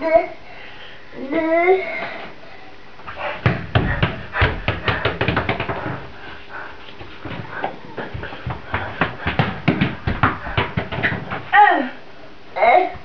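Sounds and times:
ball knocking on tiled floor: 3.4 - 6.1, 7.2 - 11.5
toddler footsteps on tile: 3.4 - 11.5.

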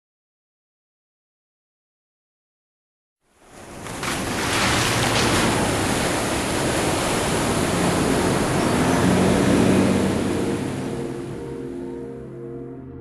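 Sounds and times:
water rushing and splashing: 3.4 - 11.7.

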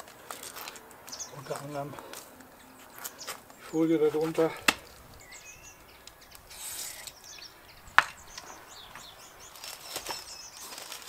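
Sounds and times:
birds chirping faintly: 0.0 - 11.0
soft rustle: 8.4 - 11.0.

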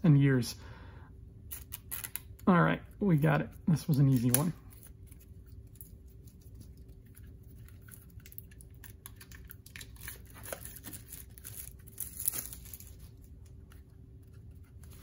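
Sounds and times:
card decks rustling and clicking: 3.7 - 5.5
plastic wrap crinkling: 3.8 - 13.6.

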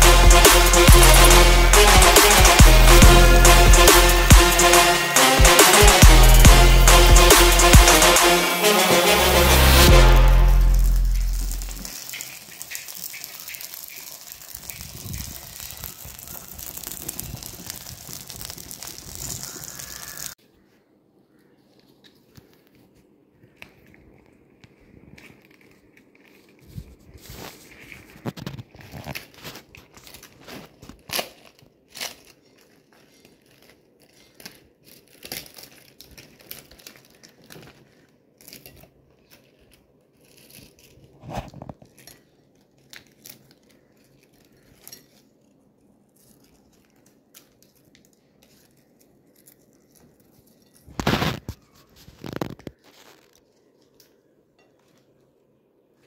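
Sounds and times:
banana leaf crinkling and tearing: 9.9 - 20.4, 21.3 - 55.3.

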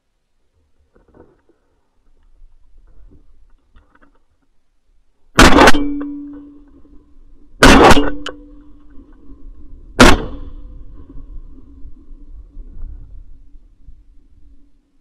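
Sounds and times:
shotgun shots: 5.4 - 6.4, 7.6 - 8.4, 10.0 - 10.6.

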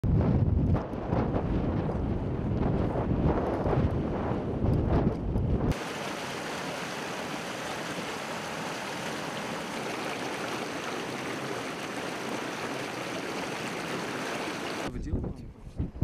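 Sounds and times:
river rushing over boulders: 5.7 - 14.9.

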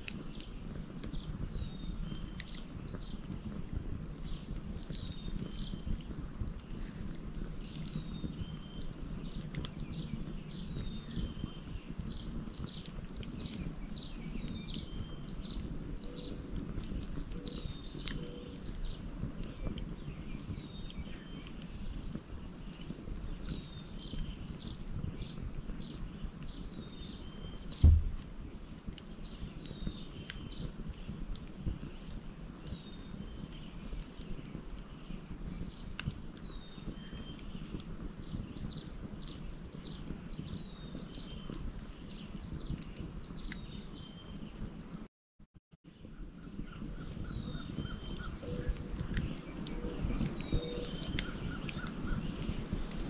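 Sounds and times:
fire crackling and popping: 0.0 - 45.1, 45.8 - 53.0
bird chirping: 17.3 - 18.7, 46.1 - 52.7
low rumble: 27.8 - 28.2
low thump: 27.8 - 28.2.

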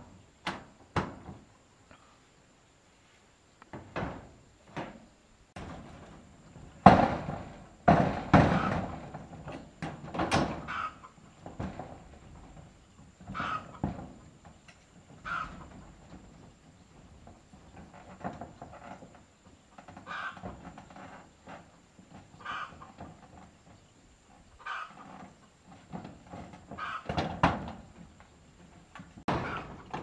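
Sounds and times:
objects knocking and scraping: 5.6 - 23.9, 25.0 - 30.0.

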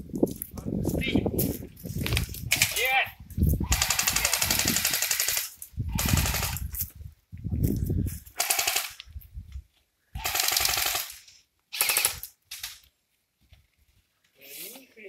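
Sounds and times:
airsoft rifles firing bursts: 3.7 - 6.6, 8.4 - 9.0, 10.2 - 12.7.

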